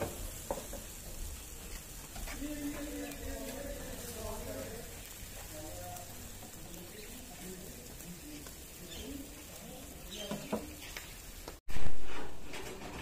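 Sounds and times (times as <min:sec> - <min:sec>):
fish sizzling on a grill: 0:00.0 - 0:12.0
faint chirping: 0:08.8 - 0:11.3.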